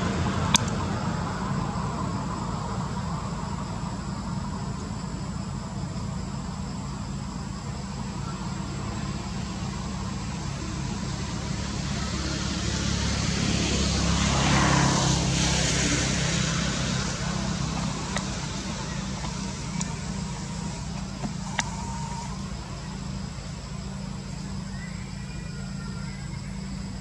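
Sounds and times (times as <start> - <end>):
road traffic rumble: 0.0 - 27.0
vehicle passing: 8.0 - 24.8.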